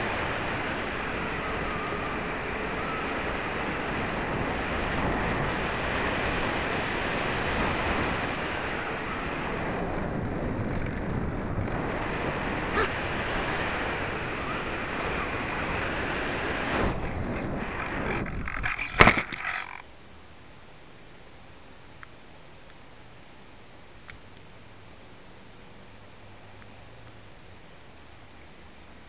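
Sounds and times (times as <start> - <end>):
wind noise on microphone: 0.0 - 19.8.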